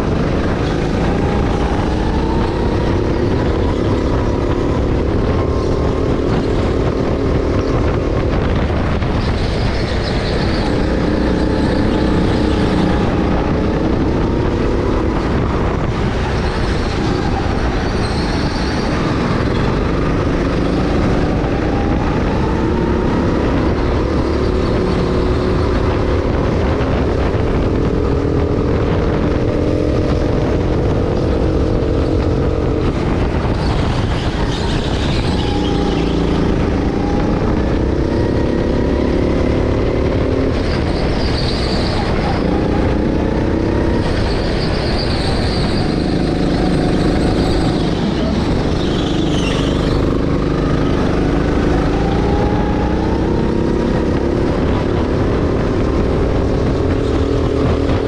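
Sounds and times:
go-kart engine revving: 0.0 - 58.0.

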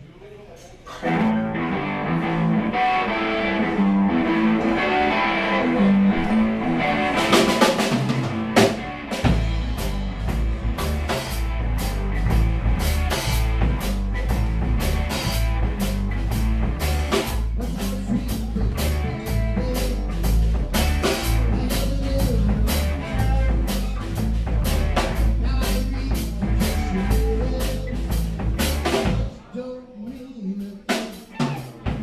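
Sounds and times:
electric guitar intro: 1.0 - 29.3
live rock band playing: 1.0 - 29.4, 30.8 - 32.0
drum fill: 6.1 - 29.4.

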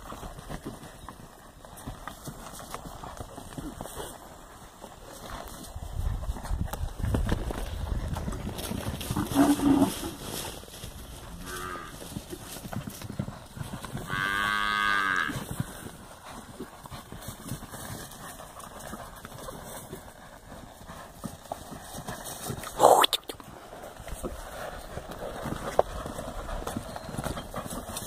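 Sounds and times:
hooves thudding on dirt: 0.0 - 28.0
cattle mooing: 9.2 - 10.2, 11.4 - 11.9, 14.1 - 15.4.

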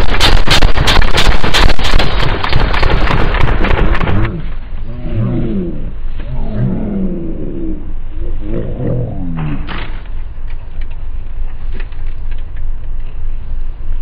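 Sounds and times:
rapid gunfire: 0.0 - 4.3.

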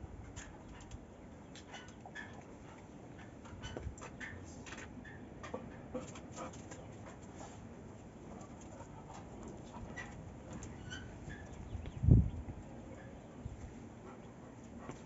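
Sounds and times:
dog panting and sniffing: 5.5 - 10.3, 13.8 - 15.0.

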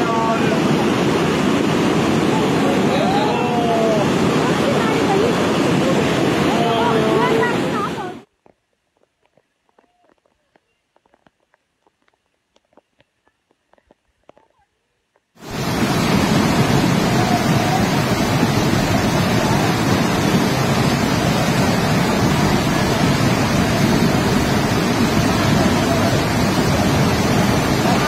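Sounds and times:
floodwater rushing: 0.0 - 8.3, 15.4 - 28.0.

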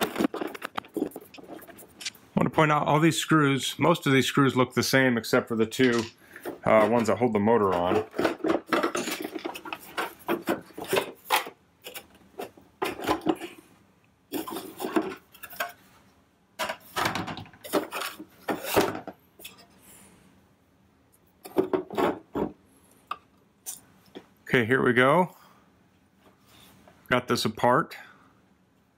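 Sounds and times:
plastic parts clacking and scraping: 0.0 - 2.2, 5.7 - 13.6, 14.3 - 15.9, 16.6 - 19.8, 21.4 - 22.6.

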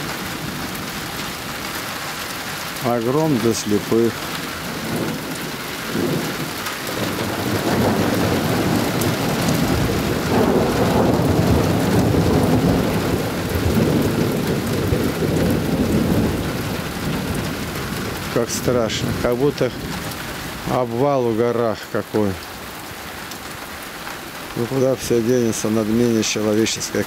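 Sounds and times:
steady rain: 0.0 - 27.0
rolling thunder: 3.3 - 20.7.

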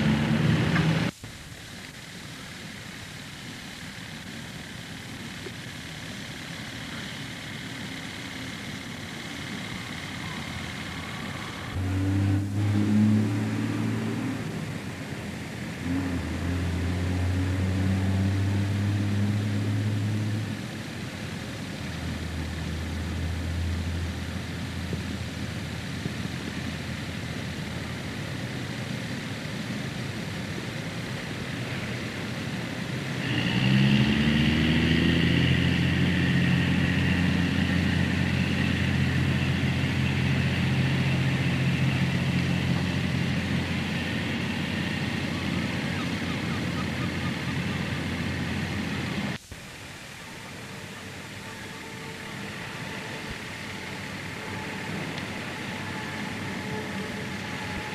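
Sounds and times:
engine revving: 0.0 - 1.2, 9.0 - 28.0, 32.7 - 49.4, 50.7 - 57.9
boat engines running: 0.0 - 57.9.

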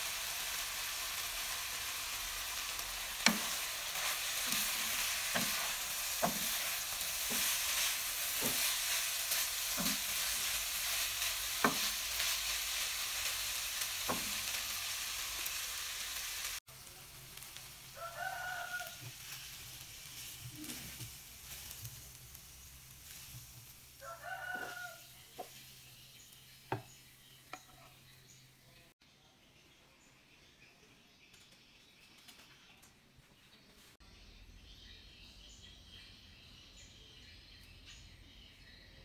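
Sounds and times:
food sizzling in a wok: 0.0 - 28.1
spatula scraping pan: 3.2 - 12.8.

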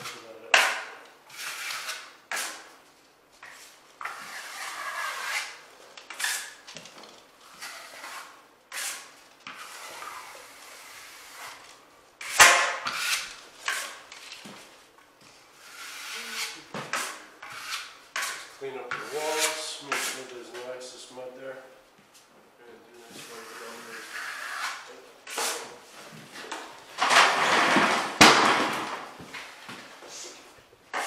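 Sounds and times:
taping knife scraping drywall: 1.3 - 2.7, 3.4 - 6.6, 7.4 - 14.3, 15.6 - 20.3, 23.2 - 25.8.

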